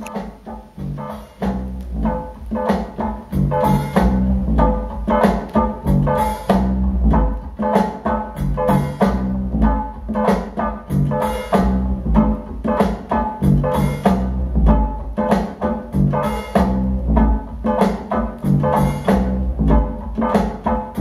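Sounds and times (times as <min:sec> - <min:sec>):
band music over loudspeakers: 0:00.0 - 0:21.0.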